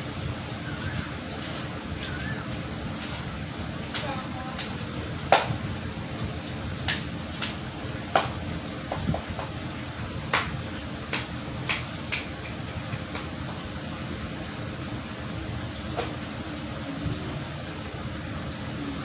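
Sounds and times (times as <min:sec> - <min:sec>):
electric fan humming: 0:00.0 - 0:19.0.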